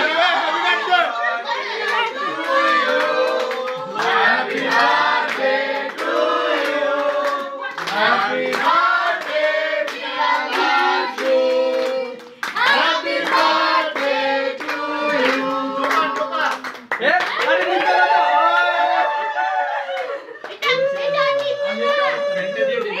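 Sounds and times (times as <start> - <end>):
group singing a birthday song: 0.0 - 16.8
people clapping: 0.0 - 23.0.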